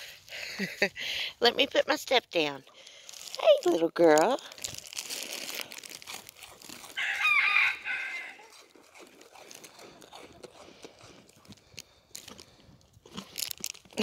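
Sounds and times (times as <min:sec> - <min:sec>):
goat chewing crunchily: 0:01.7 - 0:14.0
rooster crowing: 0:07.0 - 0:08.6.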